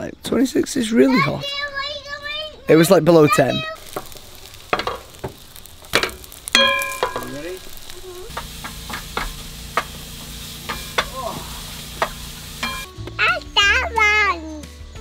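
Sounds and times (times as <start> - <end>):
food sizzling in frying pan: 3.5 - 12.9.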